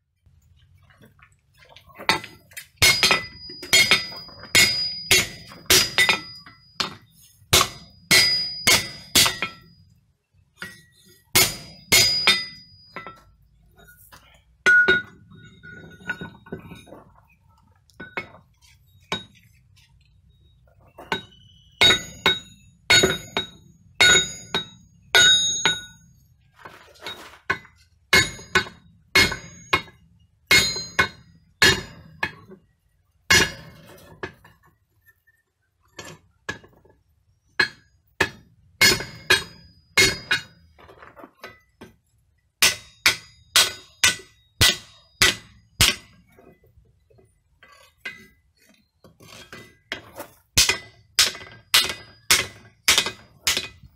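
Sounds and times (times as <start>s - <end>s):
hammer striking hot steel on anvil: 2.1s - 9.8s, 10.6s - 13.3s, 14.6s - 15.2s, 21.1s - 26.0s, 27.5s - 32.4s, 33.3s - 33.8s, 37.6s - 40.6s, 42.6s - 46.2s, 50.6s - 53.9s.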